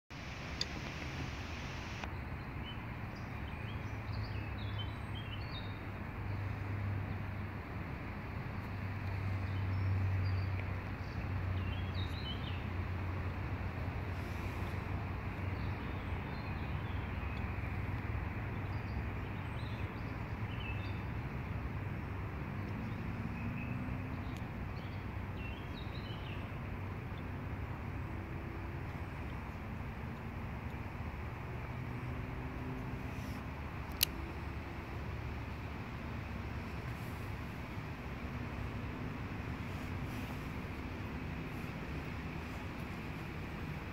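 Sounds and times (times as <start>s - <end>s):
steady background rush: 0.2s - 2.1s
small birds chirping: 0.2s - 43.9s.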